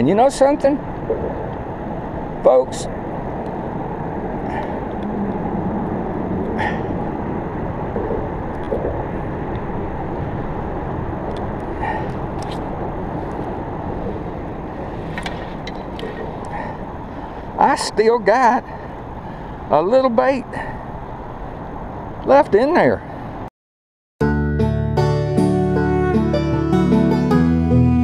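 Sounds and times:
road traffic rumble: 0.0s - 23.5s.

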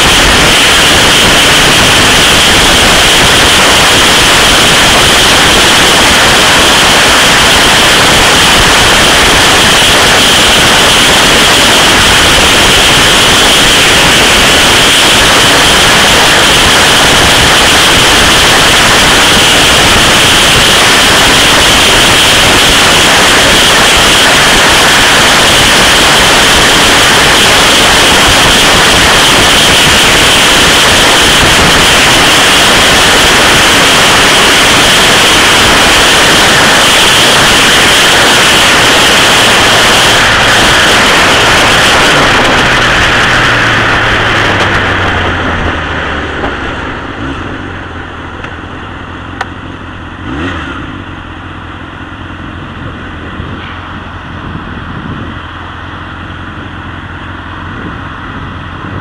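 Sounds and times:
wind rushing over microphone: 0.0s - 49.2s, 52.7s - 55.8s, 57.6s - 59.0s.

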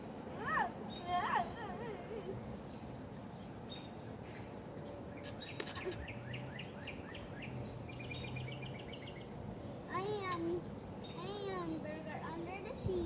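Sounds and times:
bird chirping: 0.8s - 12.4s
sharp clicks: 5.2s - 6.1s.

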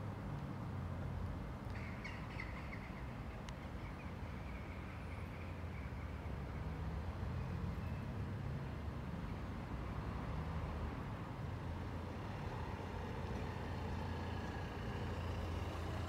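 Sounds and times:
distant motor vehicles rumbling: 10.2s - 16.0s.

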